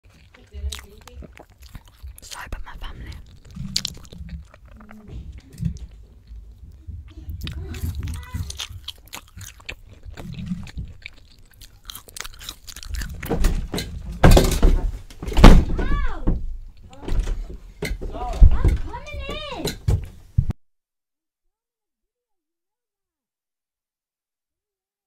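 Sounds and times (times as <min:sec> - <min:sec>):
chewing and crunching food: 0:00.0 - 0:14.8, 0:16.6 - 0:17.5
wet mouth clicks: 0:00.1 - 0:06.4, 0:07.1 - 0:13.3
thumps: 0:13.1 - 0:20.5.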